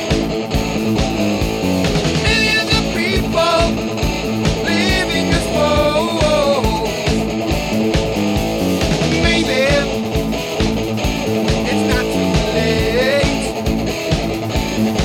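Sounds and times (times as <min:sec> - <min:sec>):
bass guitar: 0:00.0 - 0:15.0
electric guitar: 0:00.0 - 0:15.0
steady drum beat: 0:00.0 - 0:15.0
man singing: 0:02.2 - 0:04.0, 0:04.6 - 0:07.3, 0:09.0 - 0:10.2, 0:11.5 - 0:13.7.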